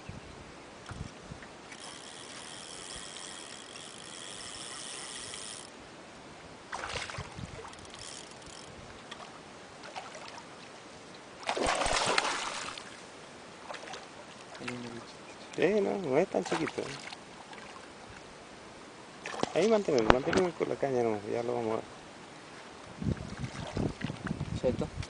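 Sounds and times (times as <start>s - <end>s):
steady high buzz: 1.6s - 6.2s
fish splashing at surface: 11.4s - 12.9s.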